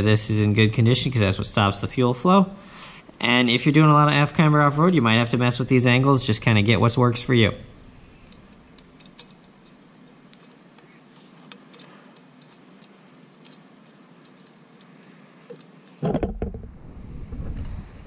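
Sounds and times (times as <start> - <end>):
small metal parts clicking: 8.2 - 16.1.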